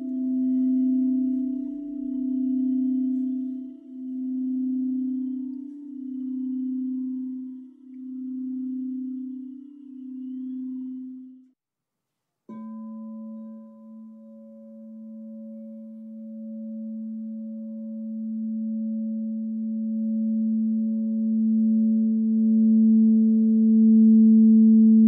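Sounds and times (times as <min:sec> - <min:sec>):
singing bowl ringing: 0:00.0 - 0:11.6, 0:12.5 - 0:25.0
low hum: 0:17.2 - 0:25.0.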